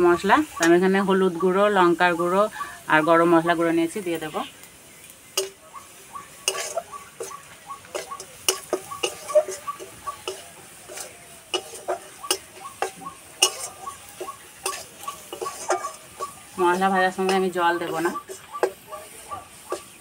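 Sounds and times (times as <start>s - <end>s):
spices frying: 0.0s - 20.0s
metal spatula scraping a pan: 5.3s - 20.0s.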